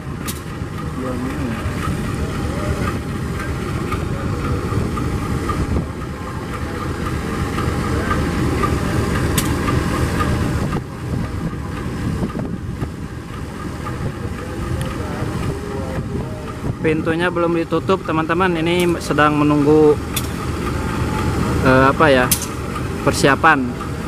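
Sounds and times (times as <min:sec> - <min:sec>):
diesel locomotive idling: 0:00.0 - 0:24.0
sharp click: 0:09.4 - 0:09.6, 0:22.3 - 0:22.6
wind noise on microphone: 0:10.4 - 0:13.1, 0:15.4 - 0:17.0.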